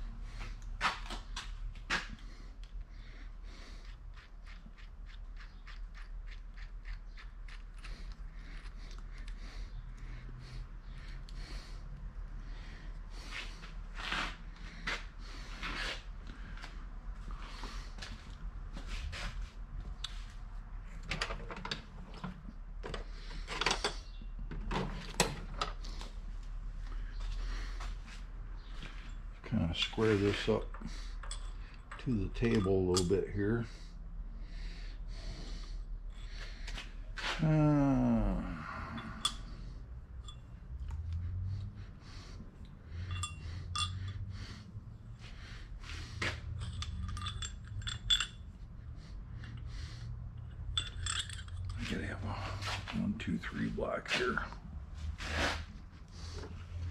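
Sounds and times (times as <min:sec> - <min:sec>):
steady low hum: 0:25.6 - 0:56.9
metal tools clinking: 0:29.8 - 0:33.6, 0:38.8 - 0:40.6, 0:42.9 - 0:44.3, 0:46.2 - 0:48.6, 0:50.4 - 0:52.4
metal parts scraping: 0:43.0 - 0:44.2, 0:46.5 - 0:48.4, 0:50.6 - 0:51.9.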